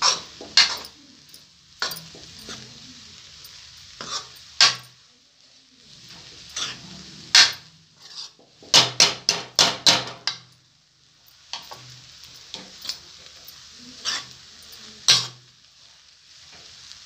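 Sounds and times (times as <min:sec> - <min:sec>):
spoon scraping metal pan: 0:00.0 - 0:04.9, 0:06.0 - 0:09.4, 0:11.5 - 0:15.5.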